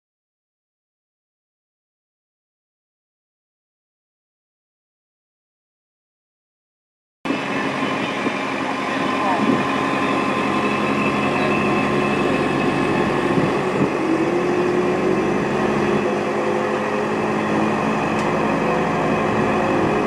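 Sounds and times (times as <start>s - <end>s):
diesel engine running: 7.3s - 20.0s.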